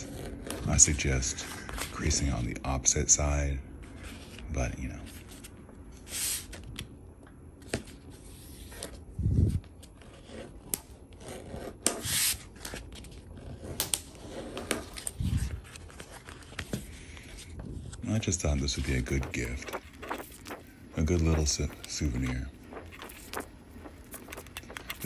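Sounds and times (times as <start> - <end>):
leather rubbing and scraping: 18.8 - 25.0.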